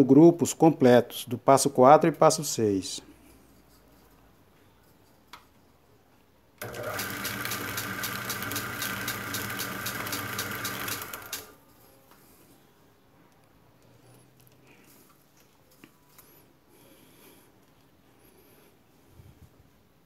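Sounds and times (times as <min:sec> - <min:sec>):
coil-winding machine motor hum: 0:06.6 - 0:11.5.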